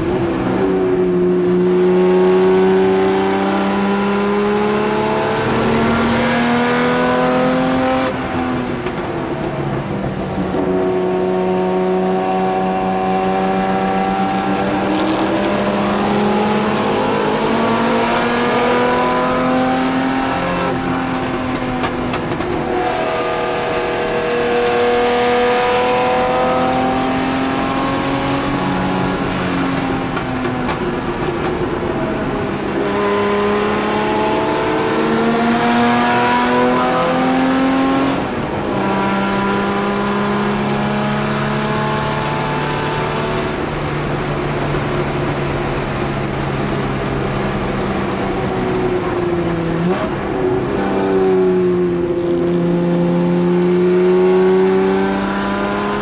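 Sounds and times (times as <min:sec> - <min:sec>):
racing engine accelerating: 0:00.0 - 0:09.1, 0:10.1 - 0:56.0.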